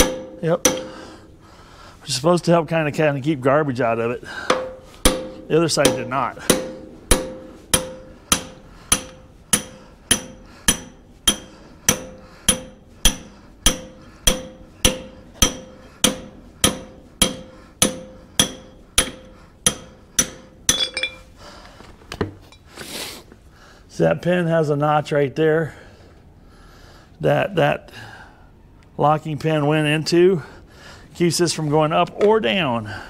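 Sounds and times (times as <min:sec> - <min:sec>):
hammer striking steel punch: 0:00.0 - 0:01.0, 0:04.5 - 0:21.2.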